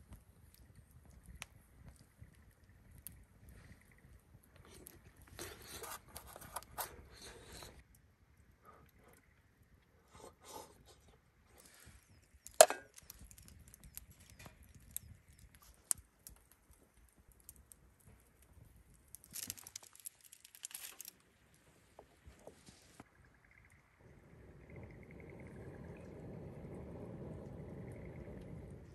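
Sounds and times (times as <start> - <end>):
handling clicks and knocks: 12.5 - 13.2
rustling: 19.1 - 21.2.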